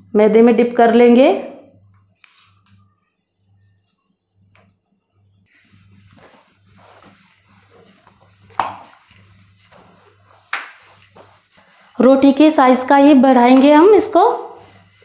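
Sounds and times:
rolling pin rolling dough: 0:03.8 - 0:15.0
rolling pin knocking on counter: 0:08.5 - 0:08.9.

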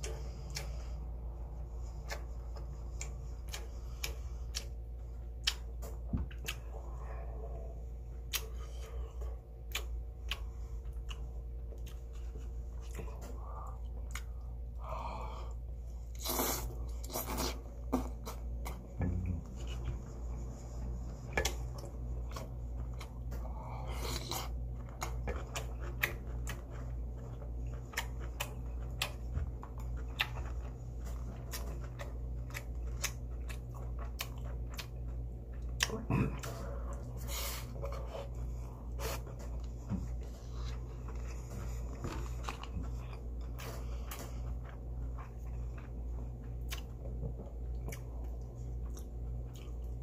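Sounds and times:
person chewing with wet smacks: 0:00.0 - 0:14.8, 0:15.5 - 0:50.0
low hum: 0:00.0 - 0:50.0.

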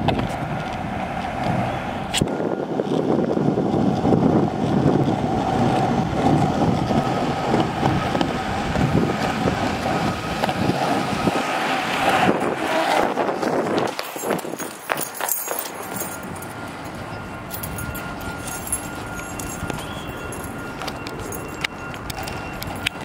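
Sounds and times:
wind on microphone: 0:00.0 - 0:15.1
skateboard wheels rolling on concrete: 0:00.0 - 0:23.0.

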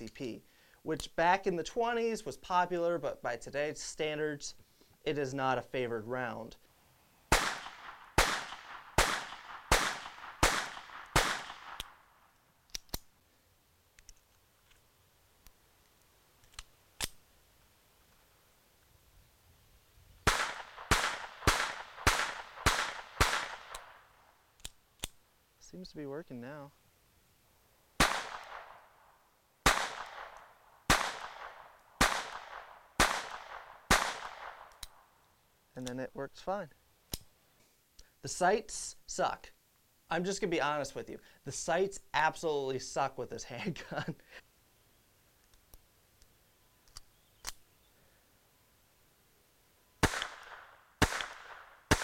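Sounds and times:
pistol shots: 0:07.3 - 0:12.0, 0:20.3 - 0:24.0, 0:28.0 - 0:28.8, 0:29.6 - 0:34.8, 0:50.0 - 0:52.0
pistol slide clicks: 0:11.7 - 0:12.0, 0:12.7 - 0:13.1, 0:16.4 - 0:17.2, 0:24.6 - 0:25.2, 0:34.7 - 0:35.0, 0:37.1 - 0:37.3, 0:46.8 - 0:47.6.

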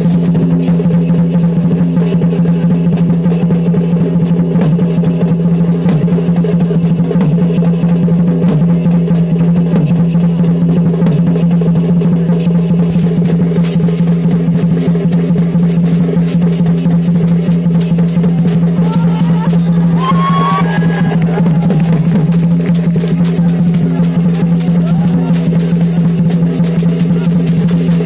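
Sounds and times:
drums beating: 0:00.0 - 0:28.0.

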